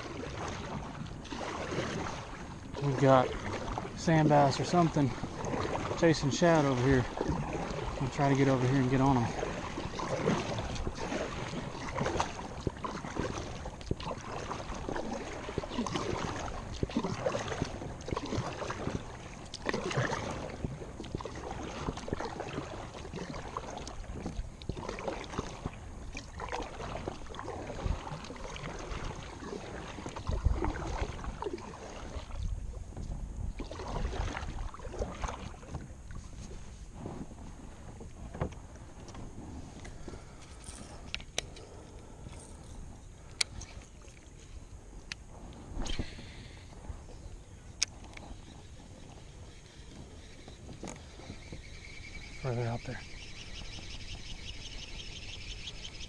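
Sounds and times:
water dripping off paddle: 0:00.0 - 0:32.4
kayak paddle strokes in water: 0:00.0 - 0:56.0.

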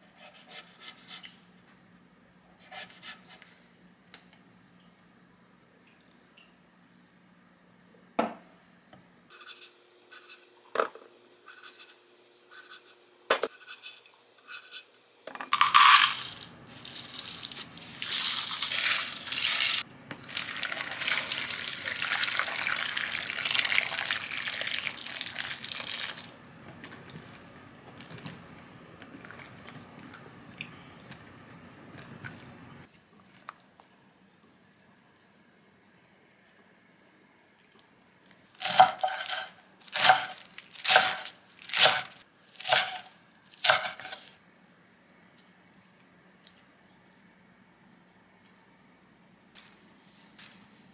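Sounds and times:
water pouring into bowl: 0:20.2 - 0:26.3.

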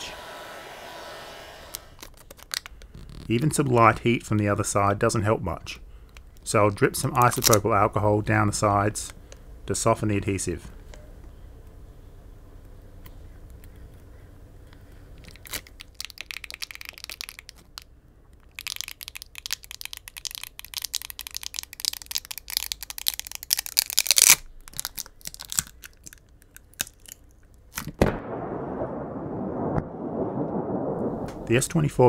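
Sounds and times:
battery adhesive crackling and tearing: 0:01.9 - 0:03.4, 0:15.2 - 0:28.0
sudden loud boom: 0:28.0 - 0:31.8.

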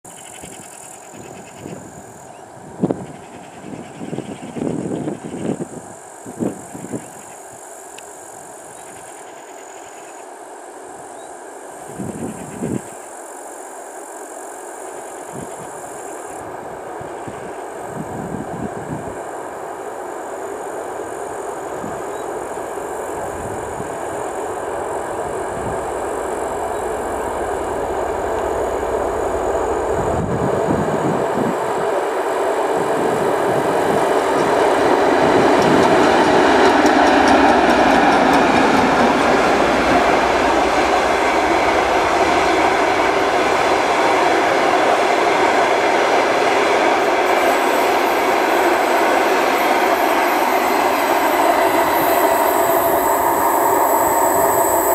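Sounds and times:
diesel locomotive engine: 0:00.0 - 0:54.9
wheels rumbling on rails: 0:15.2 - 0:54.9.

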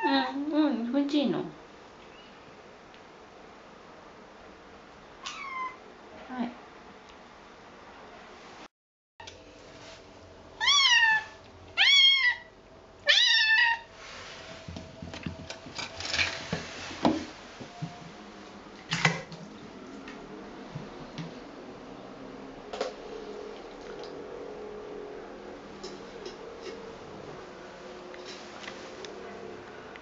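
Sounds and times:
kitten meowing: 0:05.2 - 0:05.8, 0:10.6 - 0:12.5, 0:13.1 - 0:13.9
light knocks and rustling: 0:14.3 - 0:18.2.

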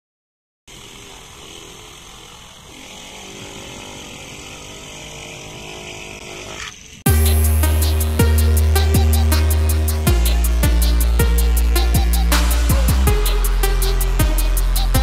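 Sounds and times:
electric drill boring into brick: 0:00.7 - 0:07.0.

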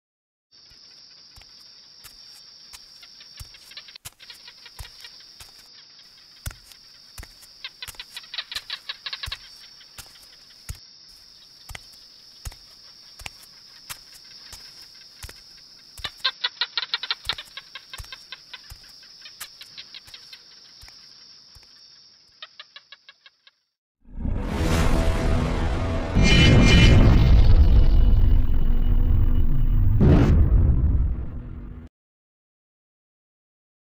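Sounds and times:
bird-like clucking calls: 0:02.8 - 0:10.6, 0:15.2 - 0:21.0
high-pitched whine: 0:24.1 - 0:30.4.

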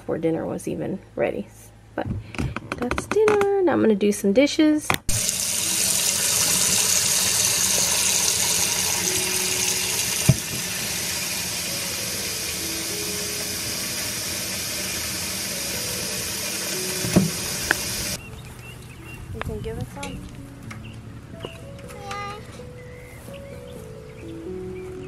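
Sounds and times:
tap running into steel sink: 0:05.1 - 0:10.8, 0:17.0 - 0:18.2.

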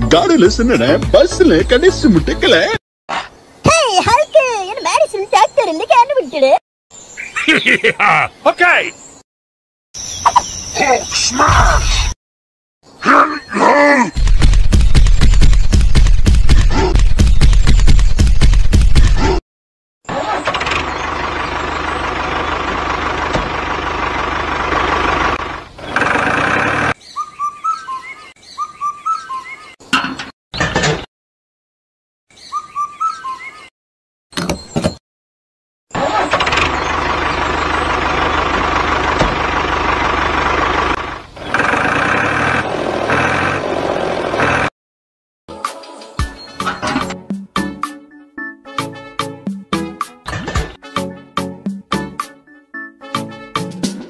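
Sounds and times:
music: 0:00.0 - 0:02.8, 0:45.5 - 0:54.0
small bird chirping: 0:10.0 - 0:12.2, 0:26.9 - 0:29.8, 0:32.3 - 0:33.7
engine running: 0:20.1 - 0:27.0, 0:36.0 - 0:44.7.

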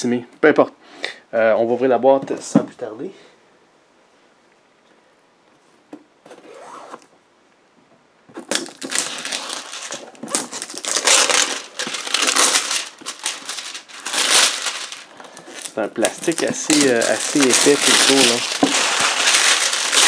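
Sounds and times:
cellophane tearing and crackling: 0:08.4 - 0:20.0.

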